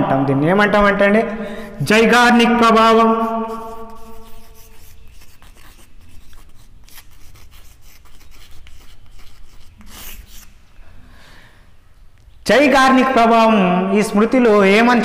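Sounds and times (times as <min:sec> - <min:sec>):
chalk scratching on chalkboard: 0:02.7 - 0:10.6.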